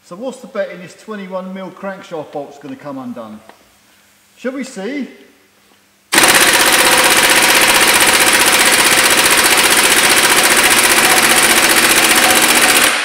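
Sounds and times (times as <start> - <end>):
impact wrench hammering: 6.1 - 13.0.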